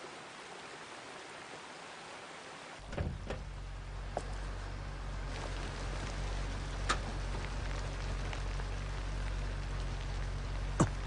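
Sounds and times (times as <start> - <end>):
steady rain: 0.0 - 11.0
low steady hum: 2.8 - 11.0.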